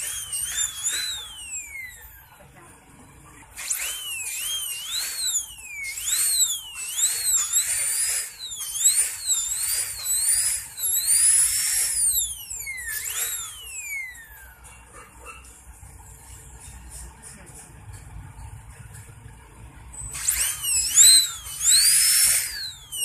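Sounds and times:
dental drill whining: 0.0 - 17.3, 19.9 - 23.0.

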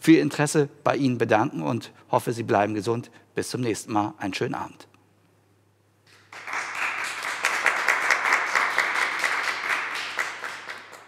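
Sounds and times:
small group clapping: 6.1 - 11.0.

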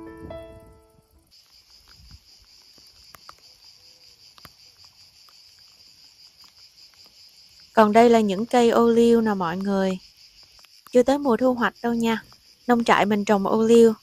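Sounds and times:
piano music: 0.0 - 1.2
insects chirping: 0.0 - 14.0
faint ticks: 1.3 - 11.2, 11.8 - 12.9.

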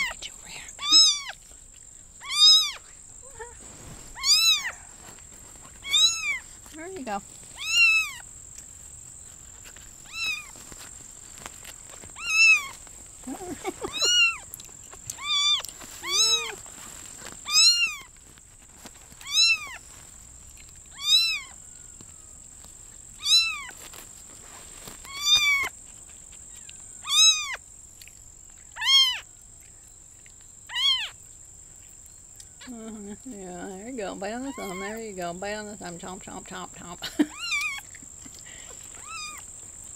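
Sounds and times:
kitten mewing: 0.8 - 1.4, 2.2 - 5.0, 5.8 - 6.4, 7.6 - 8.2, 10.0 - 10.5, 12.2 - 16.7, 17.5 - 18.1, 20.9 - 21.6, 27.0 - 27.6, 37.3 - 39.4.

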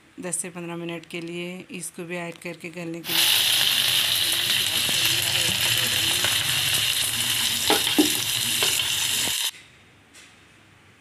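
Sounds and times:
onions sizzling in oil: 3.0 - 9.5.

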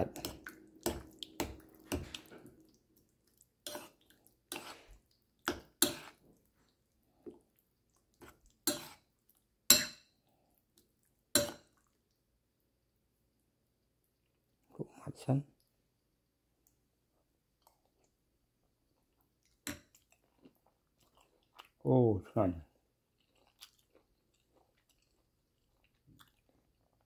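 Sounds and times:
metal spoon clinking on ceramic bowl: 9.7 - 10.1.

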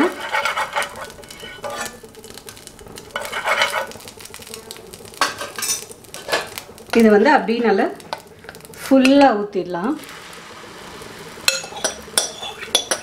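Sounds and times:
spoon scraping frying pan: 0.0 - 2.1, 3.1 - 4.0, 5.2 - 6.6, 11.4 - 13.0
metal clinks on pan: 11.5 - 13.0.

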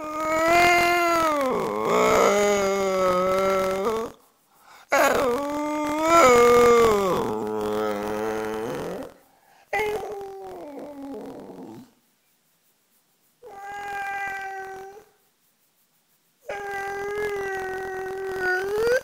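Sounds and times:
dog howling: 4.9 - 11.9, 16.5 - 19.0.

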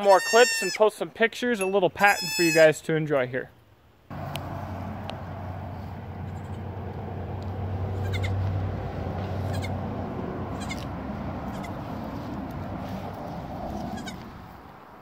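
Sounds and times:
goat kid bleating: 0.0 - 0.8, 2.1 - 2.7, 6.2 - 6.7, 7.9 - 8.6, 9.2 - 9.8, 10.5 - 12.1, 13.7 - 14.4
low hum: 4.1 - 14.7.

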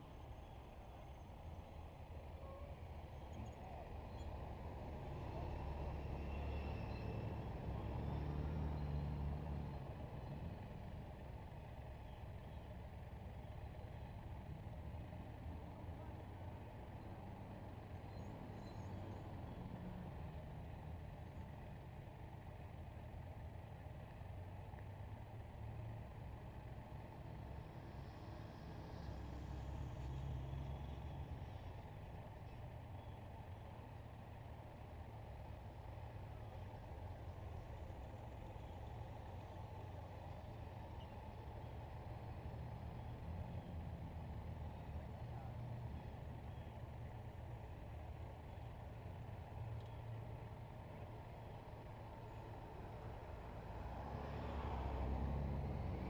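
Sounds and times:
motorcycle engines rumbling: 24.2 - 56.0.

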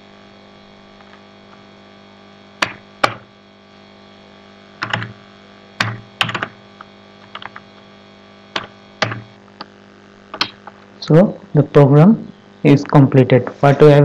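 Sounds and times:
faint steady hum: 0.0 - 14.0
keyboard keys clicking: 5.8 - 6.5, 7.3 - 7.6, 8.6 - 9.2.

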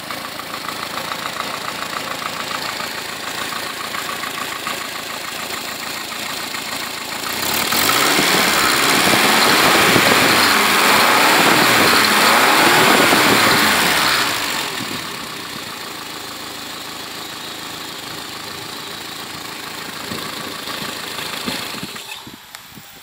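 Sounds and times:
car engine revving and idling: 0.0 - 23.0.

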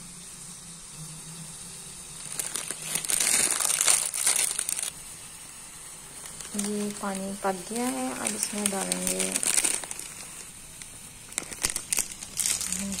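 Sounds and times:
plastic wrapper crinkling: 2.2 - 5.0, 6.2 - 13.0.

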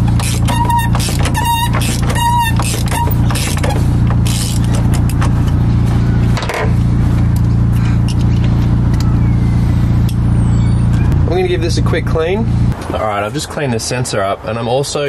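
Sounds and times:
hands handling engine parts: 0.0 - 9.2
car engine running: 0.0 - 12.8.

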